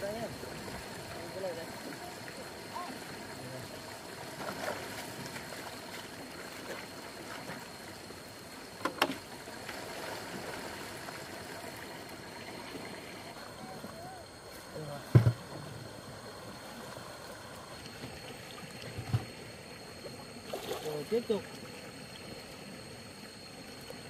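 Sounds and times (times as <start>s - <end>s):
stream water running: 0.0s - 24.0s.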